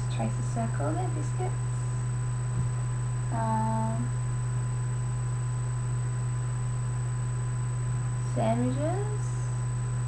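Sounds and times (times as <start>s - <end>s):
low electrical hum with whine: 0.0s - 10.0s
woman humming: 3.3s - 4.1s.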